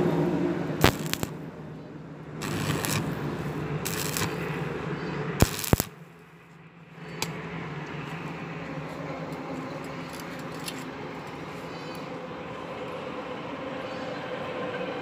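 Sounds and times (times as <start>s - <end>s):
steady low hum: 0.0s - 14.3s
welding arc crackling: 0.8s - 1.3s, 2.4s - 4.4s, 5.4s - 6.0s.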